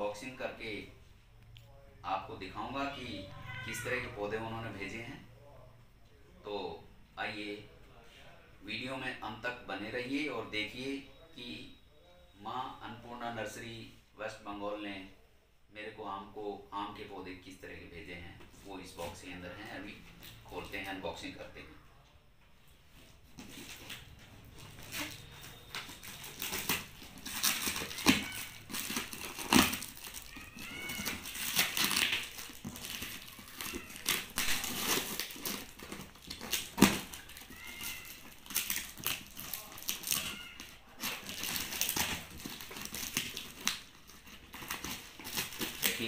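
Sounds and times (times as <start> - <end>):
short squeaks: 23.4 - 38.9
knife tearing packing tape: 24.8 - 46.0.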